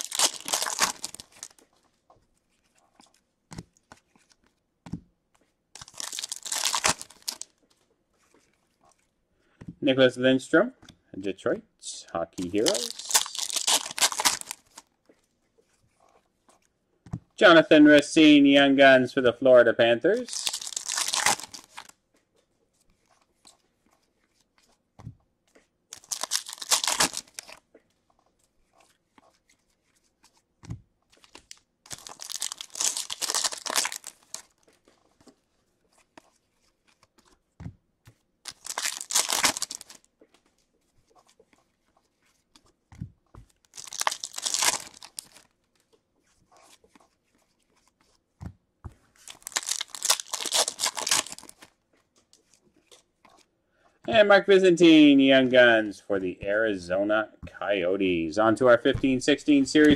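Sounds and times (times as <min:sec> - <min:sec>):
foil wrapper tearing: 0:00.0 - 0:01.6, 0:05.8 - 0:07.5, 0:12.4 - 0:14.8, 0:20.2 - 0:21.9, 0:26.0 - 0:27.6, 0:31.3 - 0:34.5, 0:38.5 - 0:40.0, 0:43.7 - 0:45.4, 0:49.3 - 0:51.7.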